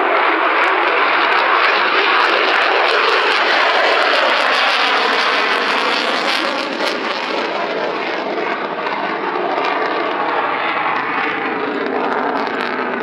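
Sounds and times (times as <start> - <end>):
jet aircraft flying past: 0.0 - 13.0.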